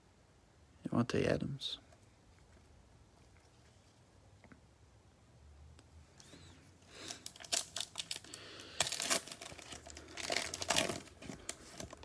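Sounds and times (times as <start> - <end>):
shiny wrapper tearing and crinkling: 7.0 - 12.0.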